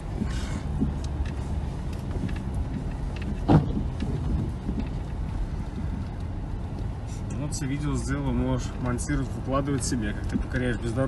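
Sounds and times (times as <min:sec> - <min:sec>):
knocks and rattles: 0:00.0 - 0:06.6
car engine rumble: 0:00.0 - 0:11.0
loud thump: 0:03.4 - 0:04.5.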